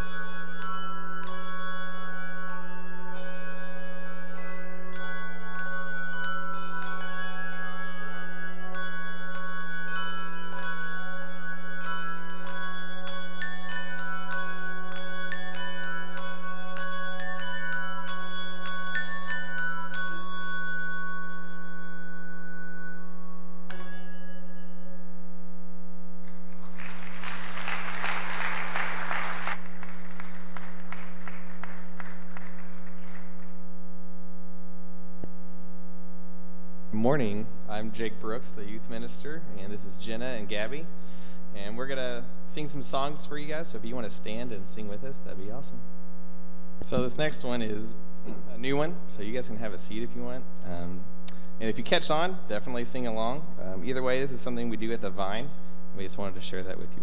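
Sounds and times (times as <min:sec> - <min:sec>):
handbell choir ringing: 0:00.0 - 0:24.7
steady low hum: 0:00.0 - 0:57.0
audience applauding: 0:26.2 - 0:33.6.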